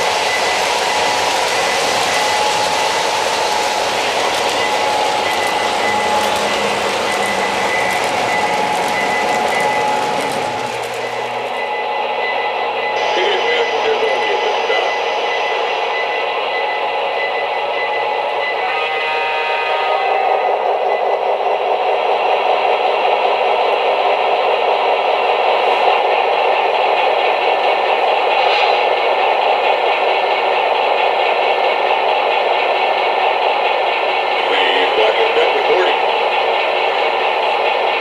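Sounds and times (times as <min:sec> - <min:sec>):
model trains rolling clatter: 0:00.0 - 0:11.6, 0:21.1 - 0:38.0.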